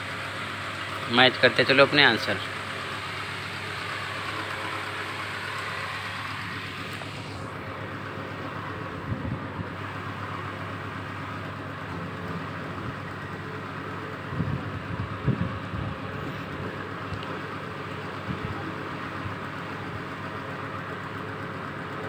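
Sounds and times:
background hum and hiss: 0.0s - 22.0s.

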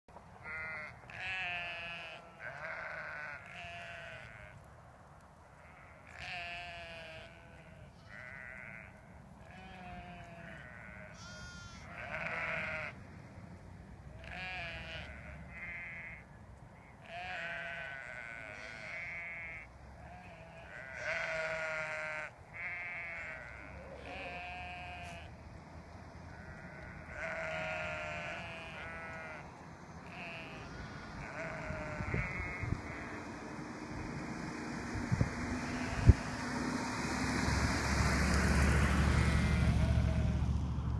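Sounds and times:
sheep and lambs bleating: 0.4s - 4.7s, 5.5s - 13.0s, 14.1s - 25.3s, 26.3s - 33.4s, 35.6s - 36.3s, 39.4s - 40.5s.

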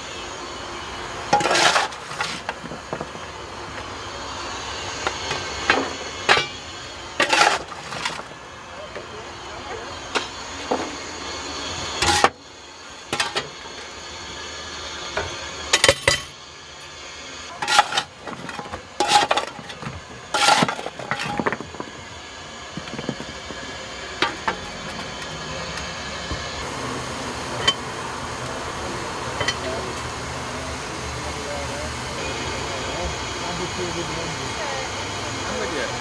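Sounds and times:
shovel scraping and clanking coal: 1.3s - 3.3s, 5.0s - 8.4s, 11.9s - 12.4s, 13.1s - 13.6s, 15.7s - 16.4s, 17.5s - 25.2s.

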